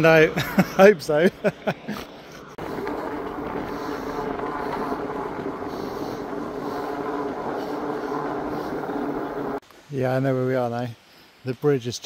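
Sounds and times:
road noise: 0:00.0 - 0:09.9
electric bike motor whirring: 0:02.6 - 0:09.6.

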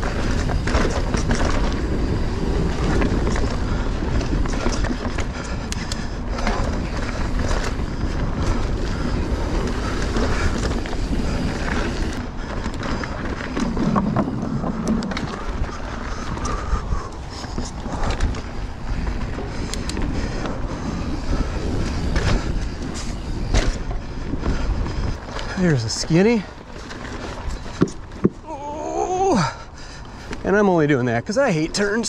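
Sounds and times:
wind on microphone: 0:00.0 - 0:30.5
bike rattling over bumps: 0:00.0 - 0:32.0
bike tyres rumbling on trail: 0:00.0 - 0:32.0.

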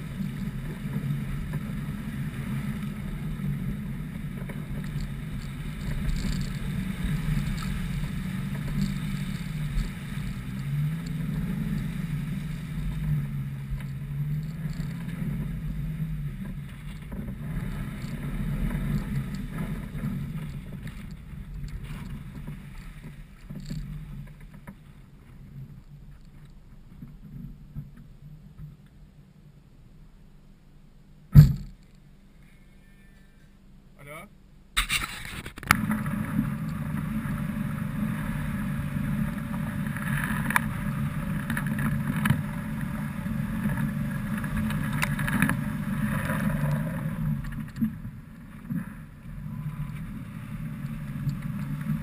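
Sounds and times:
vehicle engine running: 0:00.0 - 0:26.2, 0:35.6 - 0:52.0.

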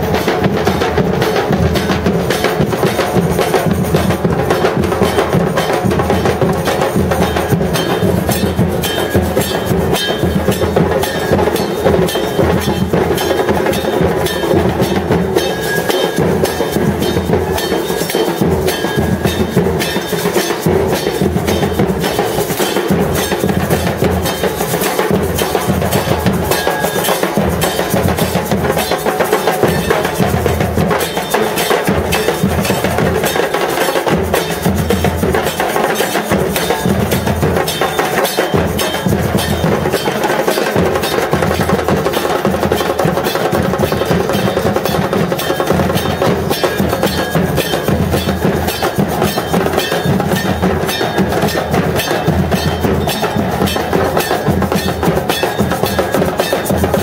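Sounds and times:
drums playing a rhythm: 0:00.0 - 0:57.0
cymbal strikes: 0:00.1 - 0:57.0.

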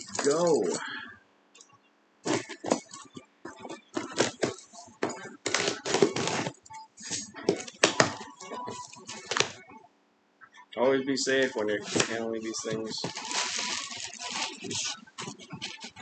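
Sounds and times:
cardboard rustling: 0:00.0 - 0:00.8, 0:02.3 - 0:09.6, 0:11.4 - 0:16.0.

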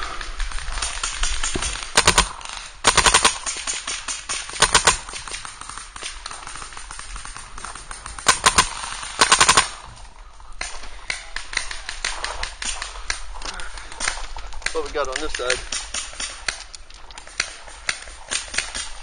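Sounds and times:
distant paintball shots: 0:00.0 - 0:19.0
paintball marker firing bursts: 0:00.6 - 0:09.9, 0:13.8 - 0:19.0.

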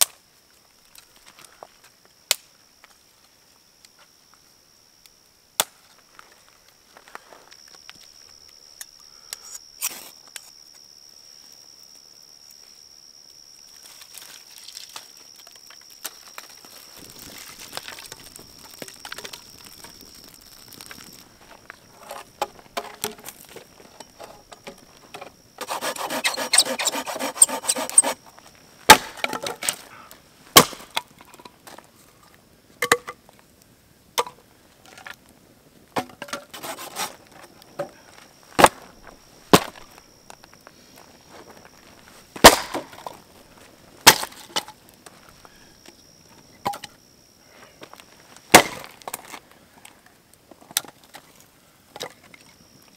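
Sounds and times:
wood cracking and snapping: 0:14.6 - 0:21.8, 0:42.4 - 0:43.2, 0:48.5 - 0:49.3
knife scraping wood: 0:25.6 - 0:28.2, 0:36.5 - 0:37.2.

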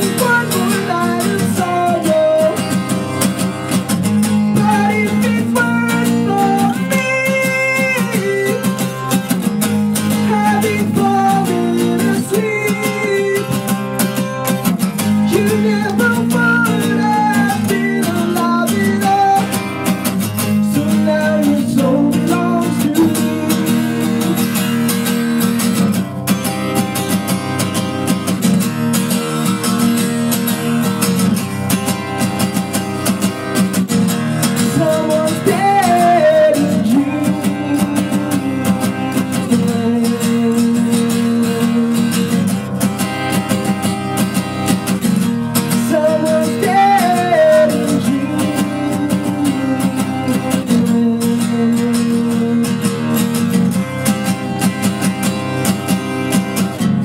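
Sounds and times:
man singing: 0:00.0 - 0:03.2, 0:04.1 - 0:09.4, 0:10.0 - 0:14.4, 0:15.0 - 0:25.8, 0:34.3 - 0:42.6, 0:45.2 - 0:53.5
acoustic guitar strumming: 0:00.0 - 0:57.0.

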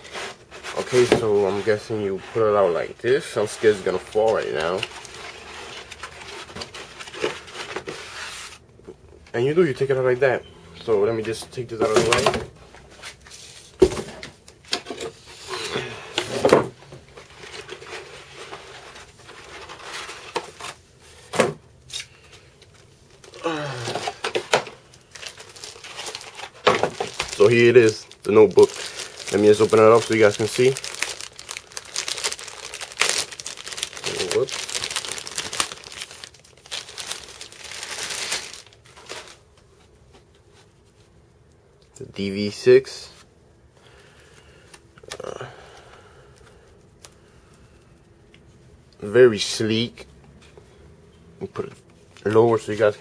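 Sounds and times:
plastic bag crinkling and rustling: 0:00.0 - 0:08.5, 0:22.6 - 0:39.9
cardboard rustling and scraping: 0:00.0 - 0:08.6, 0:16.2 - 0:20.8.

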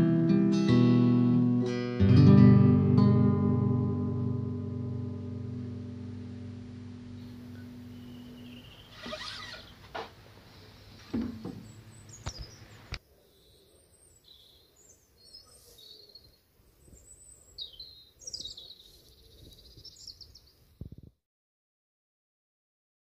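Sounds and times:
birds chirping and twittering: 0:07.1 - 0:21.0
sharp knocks: 0:11.0 - 0:12.6.

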